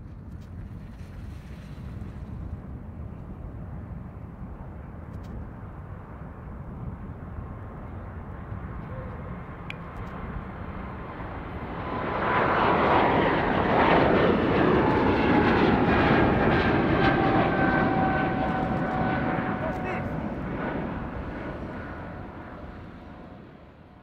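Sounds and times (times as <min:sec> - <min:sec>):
jet taking off: 0:08.6 - 0:23.9
whining engine tones: 0:14.8 - 0:21.3.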